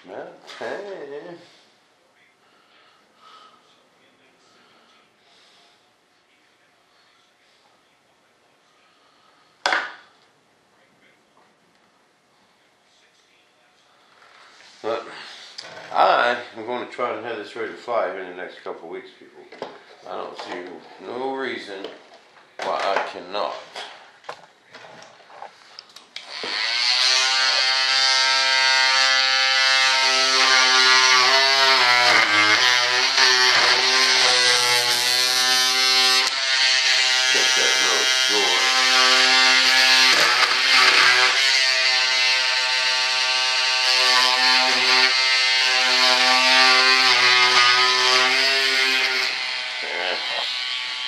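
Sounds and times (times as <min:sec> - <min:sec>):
rotary tool whining: 0:26.2 - 0:51.0.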